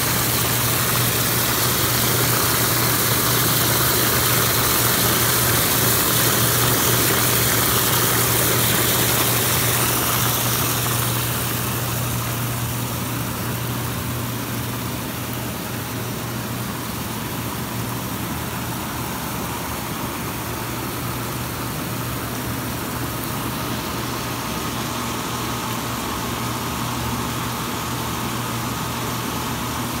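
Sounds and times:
water churning with bubbles: 0.0 - 14.1
jet pump motor hum: 0.0 - 30.0.

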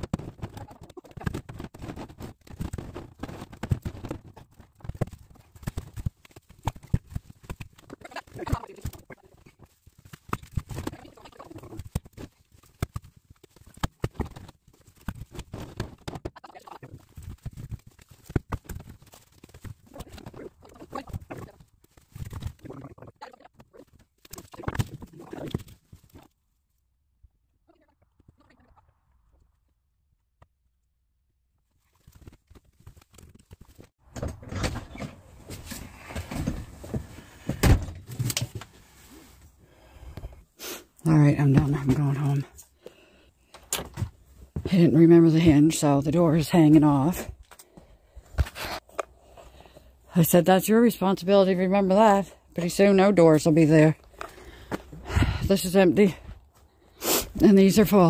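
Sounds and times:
knocks and clattering of handling: 0.0 - 22.6, 31.9 - 39.5.

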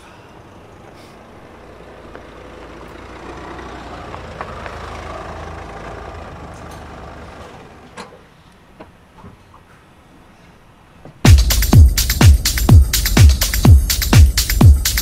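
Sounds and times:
vehicle engine rumble: 0.0 - 9.1.

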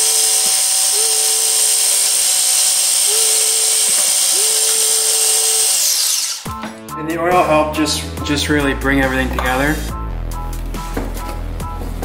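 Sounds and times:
food processor motor whining: 0.0 - 6.6.

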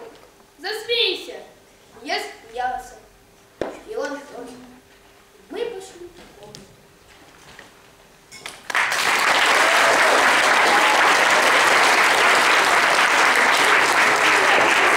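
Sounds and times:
audience applause: 8.7 - 14.9.

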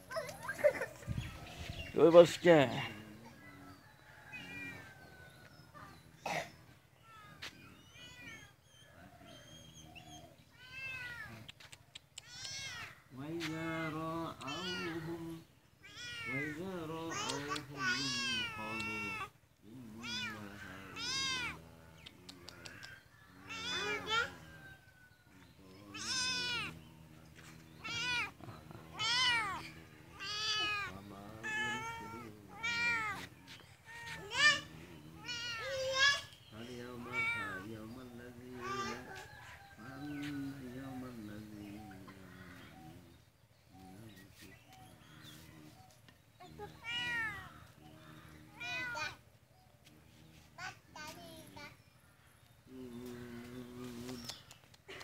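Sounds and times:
cats meowing: 4.3 - 4.9, 7.0 - 24.6, 25.6 - 37.8, 46.4 - 49.2
cat meowing: 20.0 - 21.6, 23.5 - 24.4, 25.9 - 26.8.

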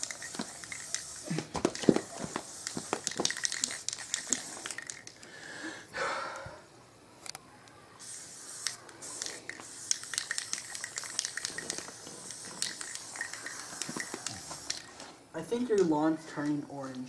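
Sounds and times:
spray paint can hissing: 0.0 - 5.2, 8.0 - 15.0.

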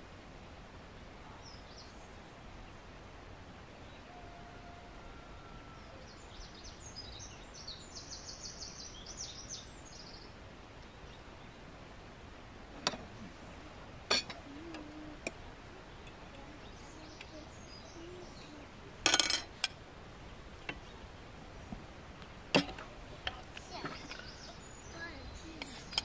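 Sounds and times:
outdoor background noise: 0.0 - 26.0
spoon clinking against plates: 14.1 - 14.4, 19.1 - 19.7
small bird twittering: 23.5 - 26.0.

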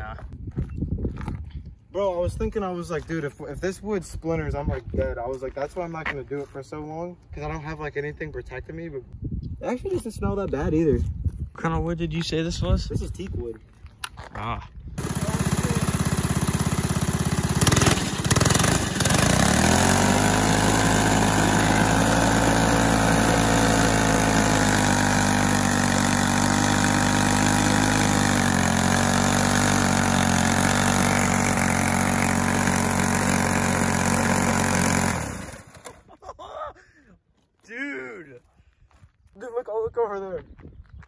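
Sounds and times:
go-kart engine revving: 15.0 - 36.0
wheels spinning on asphalt: 15.0 - 36.0.

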